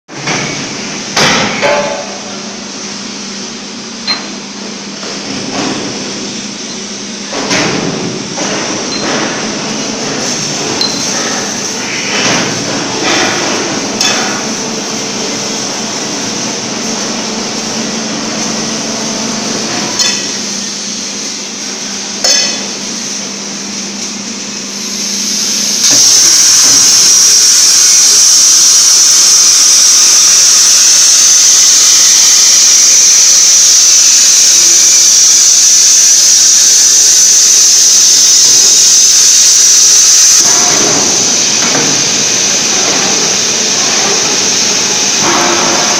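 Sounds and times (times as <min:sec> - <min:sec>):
workshop hum: 0:00.1 - 0:45.9
plasma torch hissing through metal: 0:24.7 - 0:45.9.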